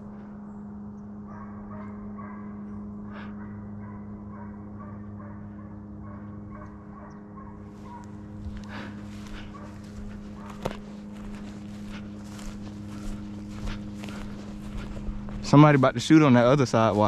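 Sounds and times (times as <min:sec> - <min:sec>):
distant hounds baying: 0:00.0 - 0:17.0
steady low hum: 0:00.0 - 0:17.0
footsteps crunching dry grass: 0:07.6 - 0:17.0.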